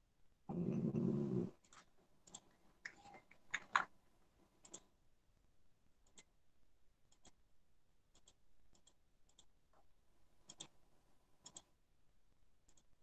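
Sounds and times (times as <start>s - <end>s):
computer mouse clicks: 1.6s - 3.9s, 4.6s - 4.9s, 6.0s - 6.3s, 7.1s - 7.4s, 8.1s - 9.6s, 10.4s - 10.8s, 11.4s - 11.7s, 12.7s - 12.9s.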